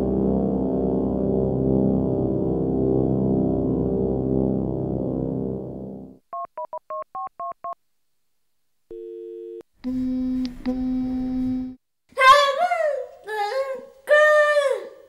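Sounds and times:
low electronic buzzing drone: 0.0s - 6.2s
music: 0.0s - 6.2s
short steady electronic tone: 9.8s - 11.8s.

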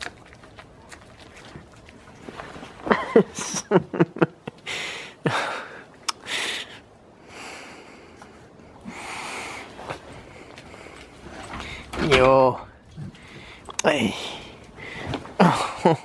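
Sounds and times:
goats snuffling and breathing: 4.5s - 12.0s, 12.8s - 15.8s.

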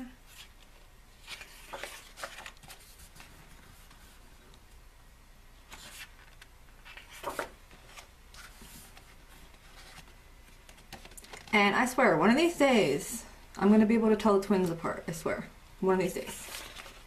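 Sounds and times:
book pages turning: 0.3s - 4.2s, 5.6s - 11.5s, 16.2s - 17.0s.

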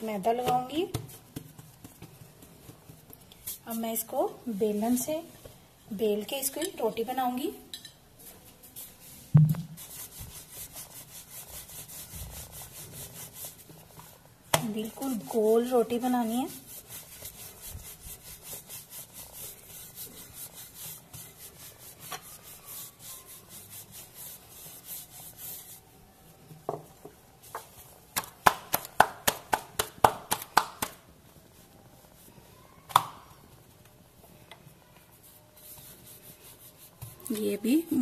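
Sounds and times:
rolling pin rubbing over dough: 0.2s - 4.2s, 8.2s - 26.4s, 35.1s - 38.0s.

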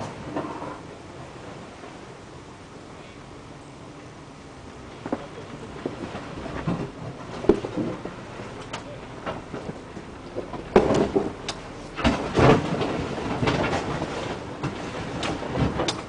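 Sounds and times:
vehicle body rattling: 5.0s - 16.0s
underbody clunks and knocks: 5.1s - 8.2s, 9.2s - 16.0s
skid plates scraping over rock: 5.1s - 16.0s.

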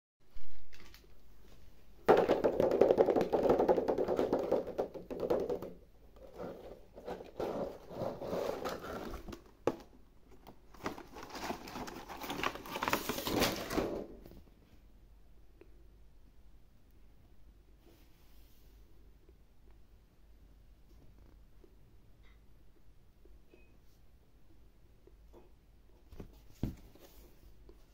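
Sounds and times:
plastic packaging crinkling: 10.7s - 14.0s.

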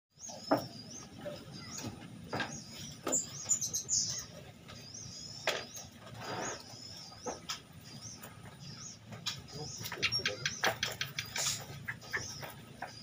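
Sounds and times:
bird chirping: 0.1s - 13.0s.

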